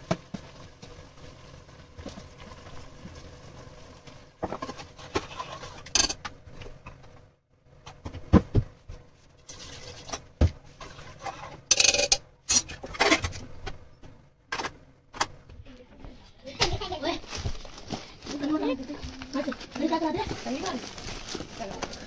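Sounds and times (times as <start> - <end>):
water pouring into a pot: 0.0 - 4.4
metal pot and lid clattering: 4.5 - 6.3, 11.2 - 13.4.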